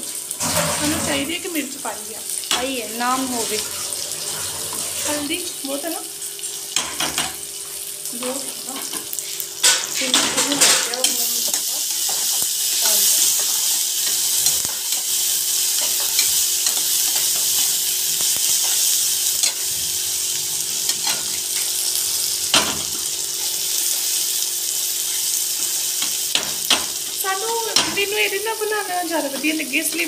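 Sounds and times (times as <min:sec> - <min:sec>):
onions and tomatoes sizzling in oil: 0:00.0 - 0:30.0
spatula scraping and knocking on pan: 0:00.4 - 0:01.3.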